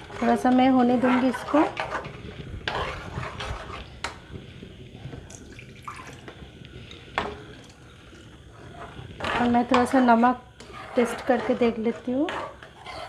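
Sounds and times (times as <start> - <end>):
spoon stirring in metal pan: 0.0 - 4.4, 8.5 - 13.0.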